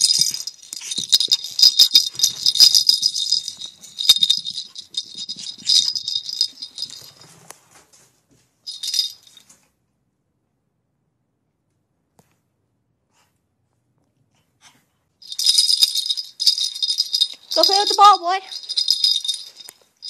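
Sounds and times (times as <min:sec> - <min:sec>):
bell ball jingling and rattling: 0:00.0 - 0:07.4, 0:08.7 - 0:09.5, 0:15.2 - 0:20.0.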